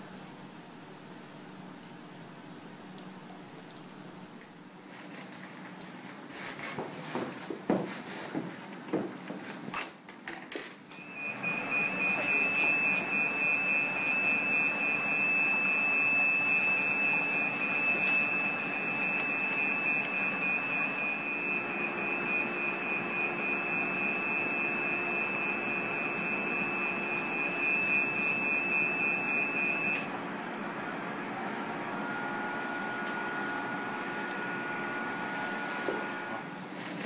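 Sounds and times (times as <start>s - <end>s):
high-pitched alarm tone: 10.9s - 30.1s.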